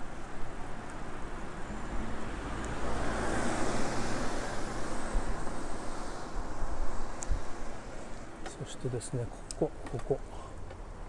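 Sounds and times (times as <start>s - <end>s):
street traffic noise: 0.0s - 11.0s
vehicle passing: 2.0s - 9.0s.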